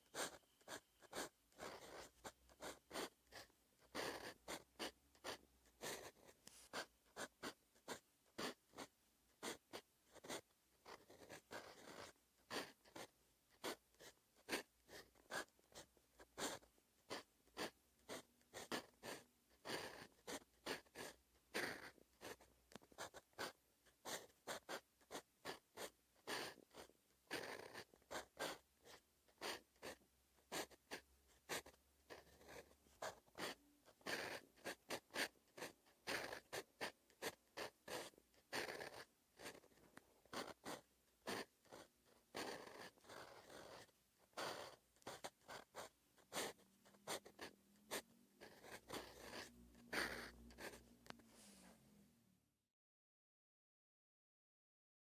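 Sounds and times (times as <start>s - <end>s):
pen nib scratching on paper: 0.0s - 51.8s.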